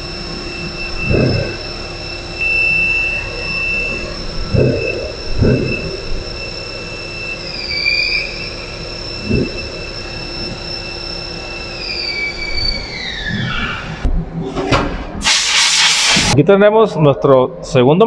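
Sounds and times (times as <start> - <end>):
lathe whine: 0.0 - 14.1
coolant spray hissing: 15.2 - 16.4.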